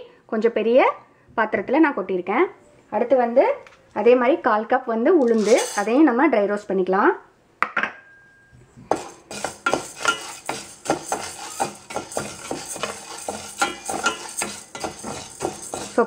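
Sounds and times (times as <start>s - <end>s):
dry lentils rattling against metal: 5.3s - 5.9s, 8.9s - 16.0s
spatula scraping lentils in metal pan: 5.3s - 6.0s, 8.9s - 16.0s.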